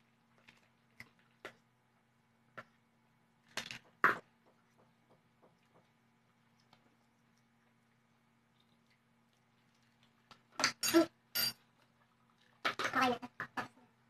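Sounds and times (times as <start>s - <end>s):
faint low hum: 0.0s - 14.0s.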